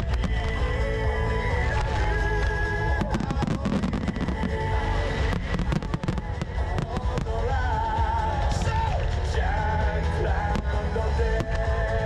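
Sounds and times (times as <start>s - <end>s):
fireworks bangs: 0.0s - 9.3s
loud music: 0.0s - 12.0s.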